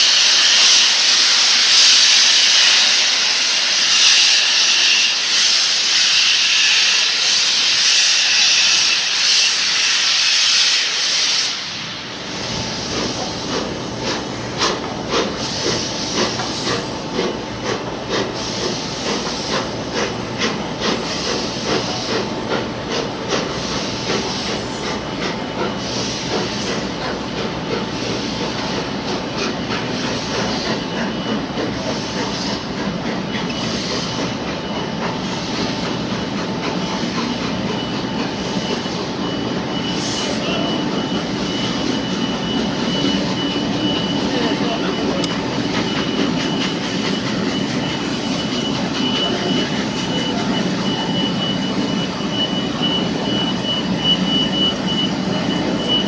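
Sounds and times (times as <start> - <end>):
steam hissing: 0.0 - 56.0
locomotive rumble with beats: 12.3 - 56.0.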